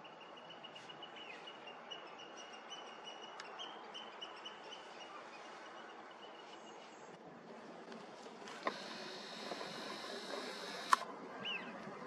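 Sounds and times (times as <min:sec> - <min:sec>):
outdoor hiss: 0:08.6 - 0:11.0.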